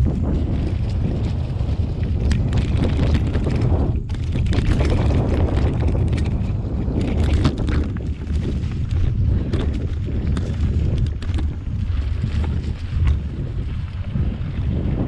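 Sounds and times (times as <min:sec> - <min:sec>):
tyres rumbling on dirt: 0:00.0 - 0:13.6
bike clicks and rattles: 0:00.0 - 0:13.8
wind buffeting microphone: 0:00.0 - 0:15.0.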